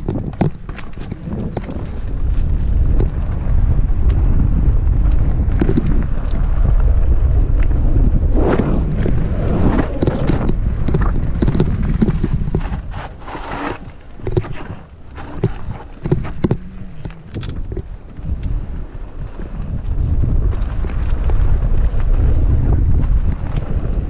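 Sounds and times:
sharp clicks and knocks: 0.0s - 3.2s, 14.2s - 18.6s
wind buffeting microphone: 0.0s - 24.0s.

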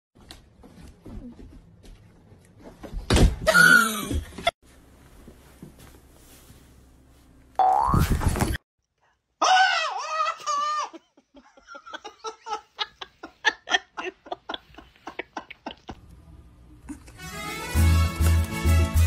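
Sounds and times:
music: 17.2s - 19.0s.

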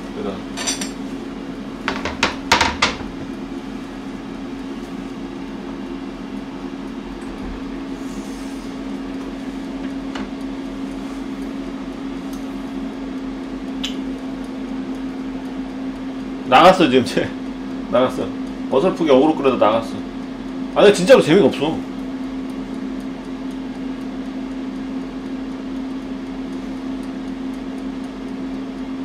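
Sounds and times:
kitchen appliance humming: 0.0s - 29.0s
dishes and utensils clinking: 0.6s - 1.0s.

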